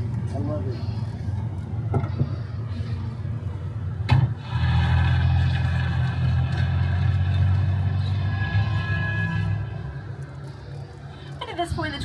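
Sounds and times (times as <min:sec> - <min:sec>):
tram rumbling: 0:00.0 - 0:12.0
drone of held tones: 0:08.0 - 0:10.3.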